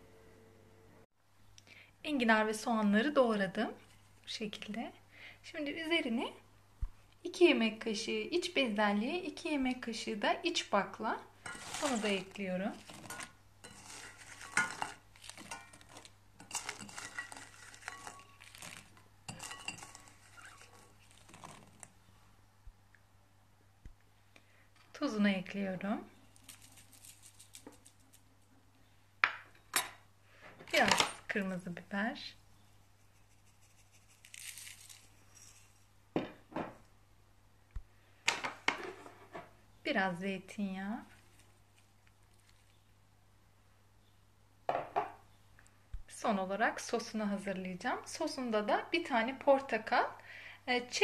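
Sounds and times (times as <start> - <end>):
peas clattering into metal pot: 11.4 - 21.9
pepper flakes rustling hiss: 26.2 - 28.3, 33.0 - 35.9.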